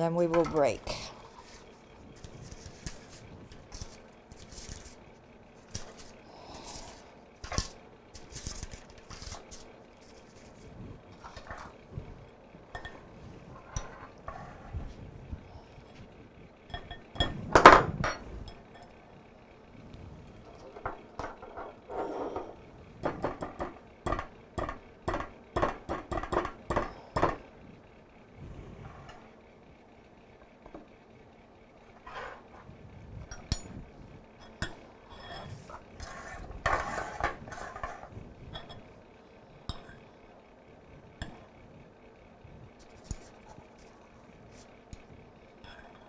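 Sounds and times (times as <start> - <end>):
spoon scraping batter: 35.2 - 38.1.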